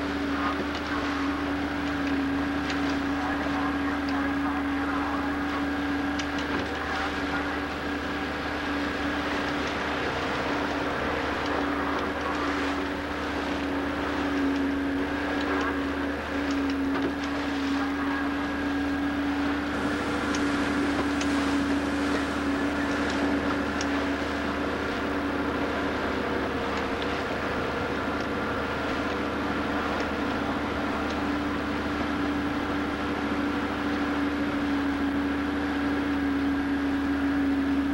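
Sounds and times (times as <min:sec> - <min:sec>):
motorboat engine humming: 0:00.0 - 0:37.9
rushing water: 0:00.0 - 0:37.9
wind noise: 0:19.4 - 0:25.2.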